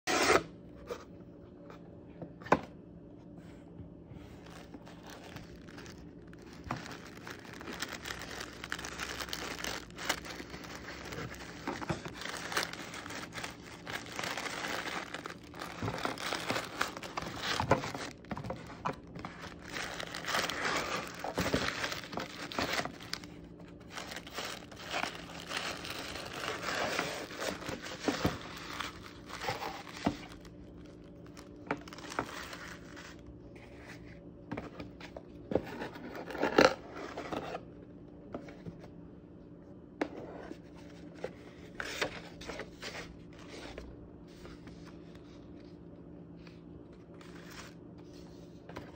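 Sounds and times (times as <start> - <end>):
tissue paper crinkling: 4.4 - 33.2.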